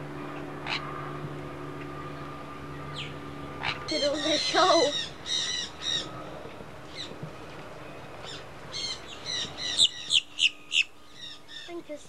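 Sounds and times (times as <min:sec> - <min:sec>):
parrots squawking: 0:00.6 - 0:00.9, 0:03.0 - 0:06.2, 0:08.2 - 0:11.7.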